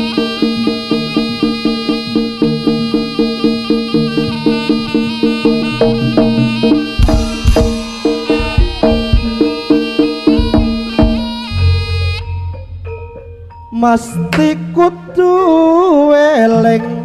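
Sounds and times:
pitched percussion notes: 0.0s - 16.1s
held tone: 3.4s - 15.2s
heavy drum strokes: 5.5s - 14.9s.

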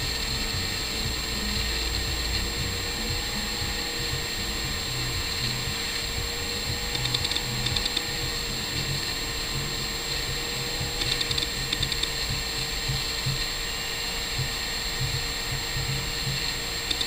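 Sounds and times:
light ticking: 0.0s - 13.4s, 14.4s - 17.0s
air pump humming: 0.0s - 17.0s.

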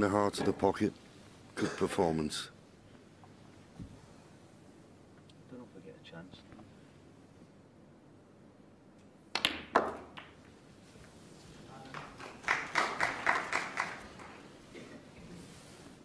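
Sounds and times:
snooker balls clicking: 9.3s - 10.6s
cue tip striking ball: 9.4s - 10.5s
scattered clapping: 11.8s - 14.5s.

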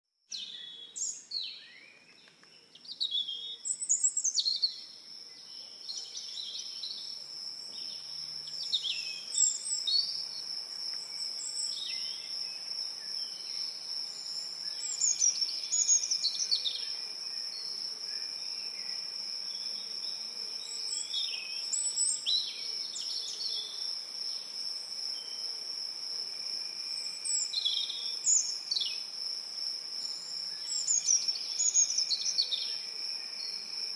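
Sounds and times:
birds singing: 0.3s - 23.8s, 30.0s - 32.8s
high-pitched insect drone: 3.8s - 33.9s.

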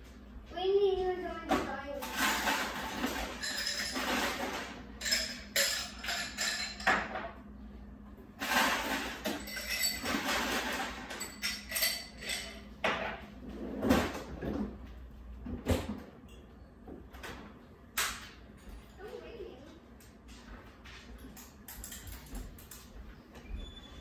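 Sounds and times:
dishes clinking and knocking: 1.5s - 7.4s, 8.4s - 14.7s, 21.4s - 22.8s.

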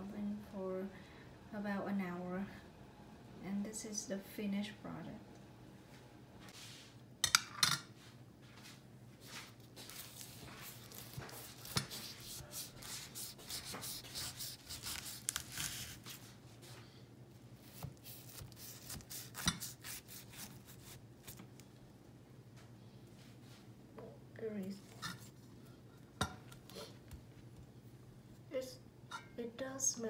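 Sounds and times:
knife crunching through pie crust: 9.8s - 16.3s, 17.6s - 21.4s.

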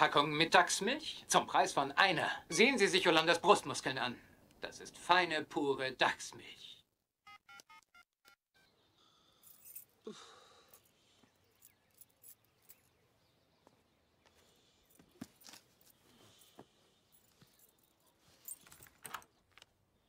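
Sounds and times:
faint sigh: 9.0s - 11.3s.

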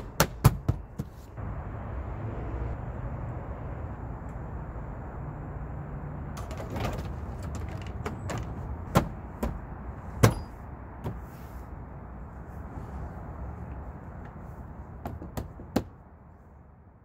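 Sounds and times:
handling clicks and knocks: 6.4s - 9.6s.

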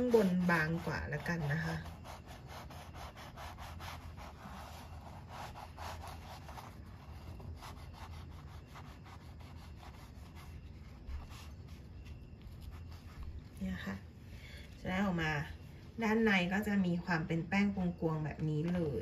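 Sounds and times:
knife sawing through pastry: 0.0s - 11.7s.

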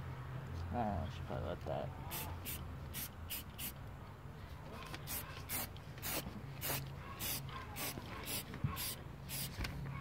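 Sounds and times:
spray can hissing bursts: 2.1s - 3.8s, 5.0s - 9.6s.

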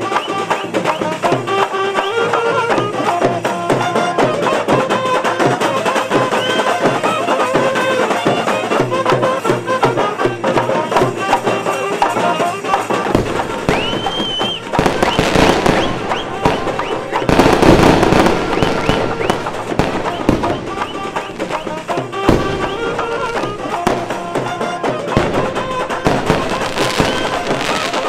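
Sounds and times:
driving drum beat: 0.0s - 28.0s
saxophones playing dance tune: 0.0s - 28.0s
firework hiss and crackle: 10.5s - 28.0s.

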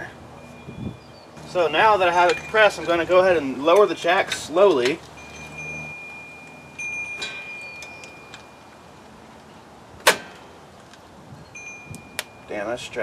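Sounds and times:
thin steady ringing tone: 0.3s - 9.0s, 11.4s - 13.0s
sharp metallic clink: 4.3s - 8.6s.

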